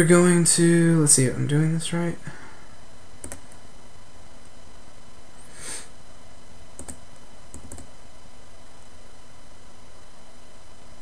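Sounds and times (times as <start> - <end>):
steady background hum: 0.0 - 11.0
computer mouse clicks: 3.2 - 3.6, 6.8 - 7.9.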